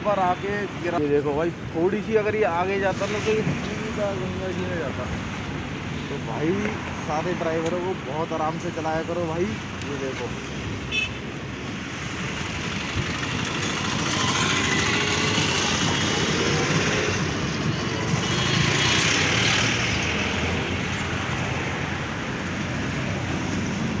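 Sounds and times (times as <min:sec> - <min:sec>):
vehicles passing by: 0:00.0 - 0:24.0.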